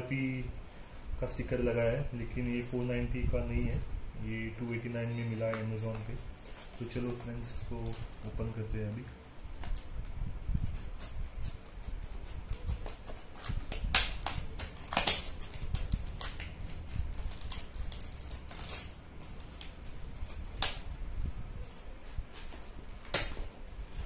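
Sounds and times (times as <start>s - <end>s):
scissors cutting plastic: 4.6s - 21.0s, 21.6s - 24.0s
plastic snapping: 12.4s - 21.0s, 21.7s - 24.0s.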